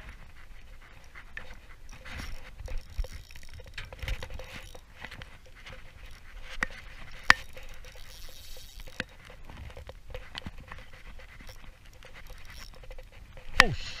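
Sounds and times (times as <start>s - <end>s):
spinning reel clicks: 1.9s - 10.5s, 11.4s - 13.7s.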